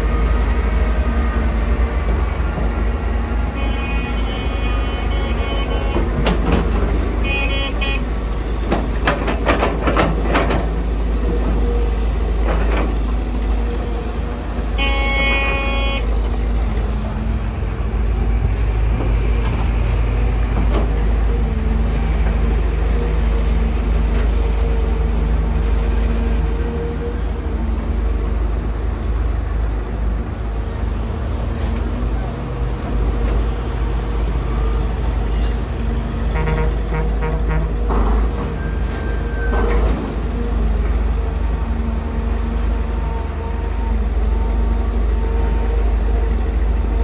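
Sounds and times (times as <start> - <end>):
excavator diesel engine running: 0.0 - 47.0
vehicle horn tooting: 3.6 - 6.1, 7.2 - 8.1, 14.8 - 16.2, 36.4 - 37.7.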